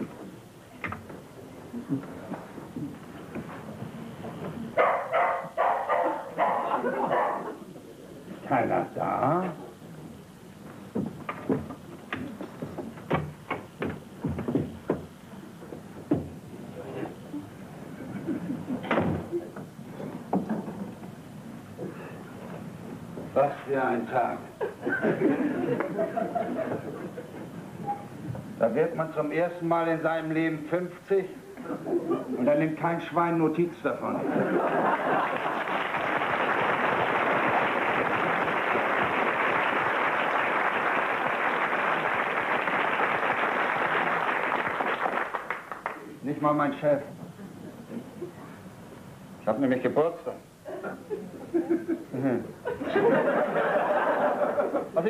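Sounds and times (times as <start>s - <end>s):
wooden door shutting: 18.8s - 19.3s
audience applauding: 34.7s - 46.0s.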